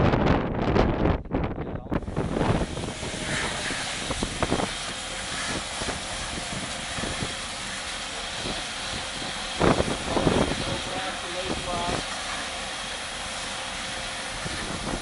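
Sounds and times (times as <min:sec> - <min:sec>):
hose spraying water: 0:02.0 - 0:15.0
pump engine running: 0:02.0 - 0:15.0.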